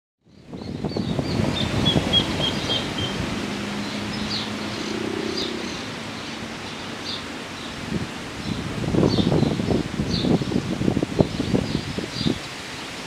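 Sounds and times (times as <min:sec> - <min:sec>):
rustling leaves: 0:00.2 - 0:13.0
bird chirps: 0:00.3 - 0:03.2
wind rushing: 0:00.3 - 0:06.7, 0:07.7 - 0:13.0.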